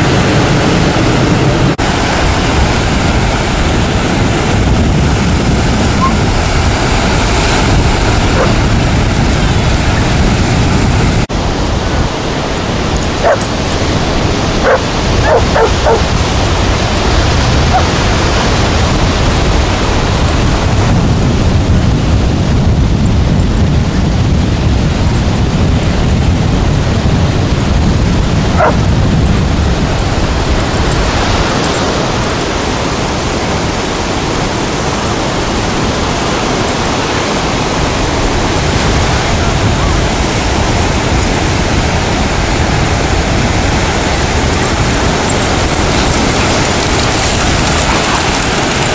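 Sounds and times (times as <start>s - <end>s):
ocean surf: 0.0s - 48.9s
wind on microphone: 0.0s - 48.9s
dog yips: 14.6s - 16.0s.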